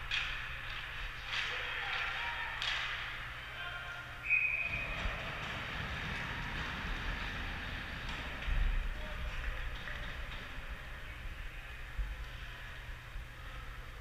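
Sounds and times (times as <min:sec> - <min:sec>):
arena rumble: 0:04.6 - 0:14.0.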